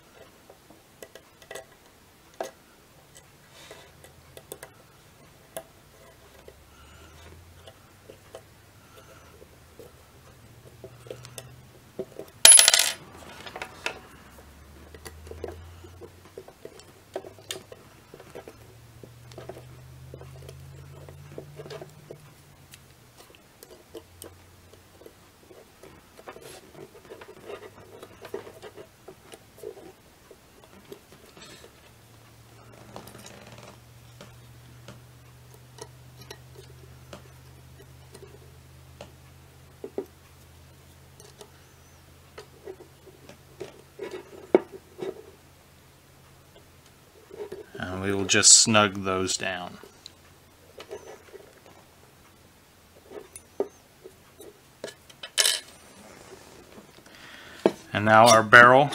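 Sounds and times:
steel parts handled on wood: 0:10.8 - 0:14.1, 0:53.0 - 0:56.0.

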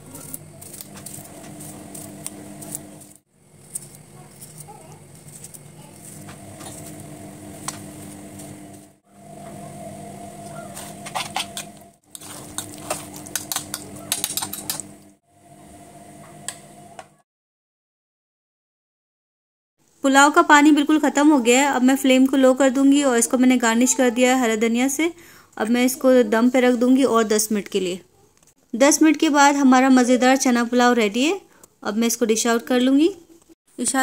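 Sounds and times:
knife slicing cucumber: 0:00.0 - 0:07.0, 0:10.5 - 0:14.9
steady low hum: 0:00.0 - 0:17.1
spoon stirring and scraping bowl: 0:00.1 - 0:08.9, 0:10.4 - 0:15.1.

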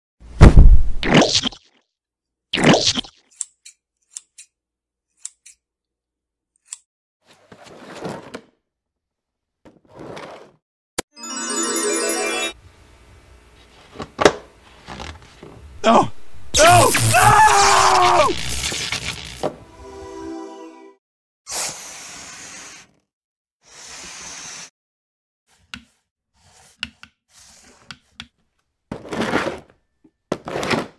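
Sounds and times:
scissors snipping: 0:03.3 - 0:05.6.

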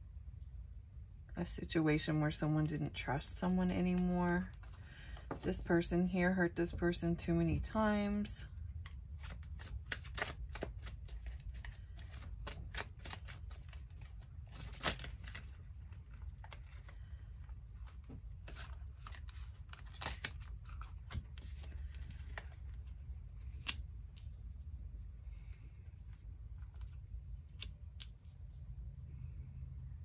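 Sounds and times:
low steady hum: 0:00.0 - 0:30.0
cards clicking and snapping: 0:08.8 - 0:17.0, 0:18.4 - 0:24.3, 0:26.5 - 0:28.2.

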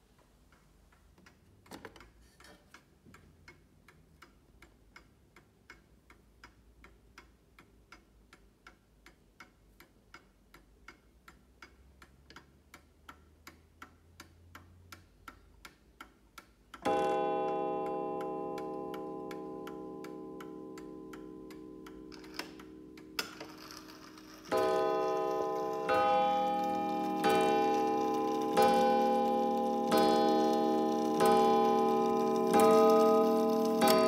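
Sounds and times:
clock ticking: 0:00.0 - 0:34.0
clock strike ringing: 0:16.8 - 0:34.0.

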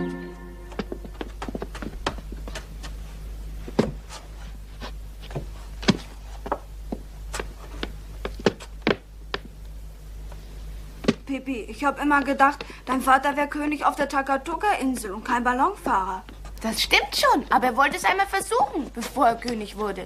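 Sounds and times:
footsteps on stairs: 0:00.0 - 0:09.7, 0:11.0 - 0:11.3, 0:12.0 - 0:13.2
low steady hum: 0:00.0 - 0:20.0.

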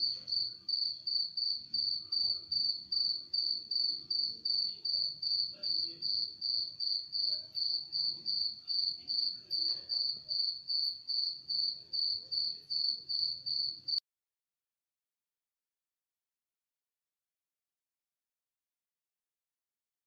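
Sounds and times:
cricket chirping: 0:00.0 - 0:14.0
faint low background noise: 0:00.0 - 0:14.0.

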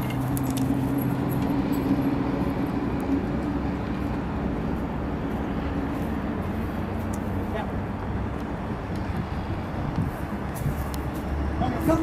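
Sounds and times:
outdoor traffic noise: 0:00.0 - 0:12.0.

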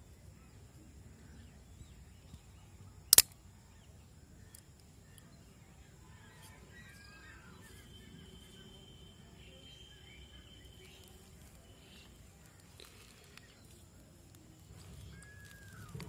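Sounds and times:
knife blade snapping open: 0:03.1 - 0:03.4.

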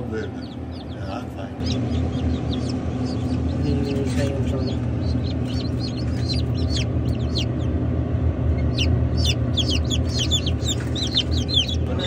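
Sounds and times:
chicks peeping: 0:00.0 - 0:12.0
low machine hum: 0:00.0 - 0:12.0.

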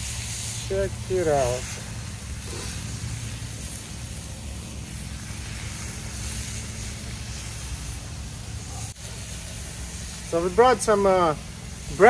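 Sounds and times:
faint hiss: 0:00.0 - 0:12.0.

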